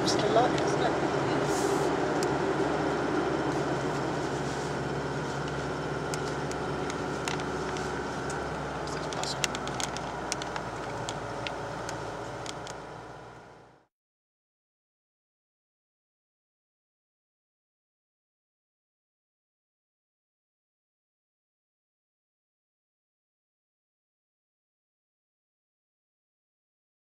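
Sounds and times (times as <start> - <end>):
engine and tyre drone: 0.0 - 13.9.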